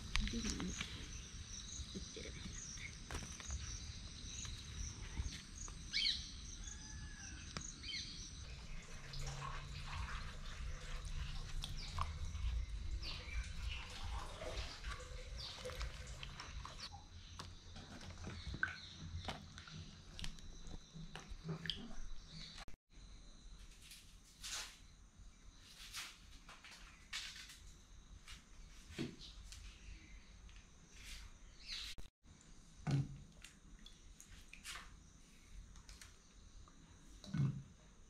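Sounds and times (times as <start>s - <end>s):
birds chirping: 0.0s - 22.7s
water splashing and dripping: 8.4s - 22.8s, 32.8s - 35.1s.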